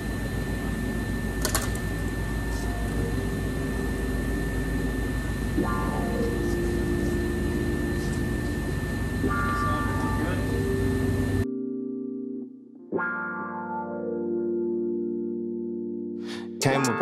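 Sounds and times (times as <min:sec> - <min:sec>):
shop hum: 0:00.0 - 0:11.5
constant high whine: 0:00.0 - 0:14.3.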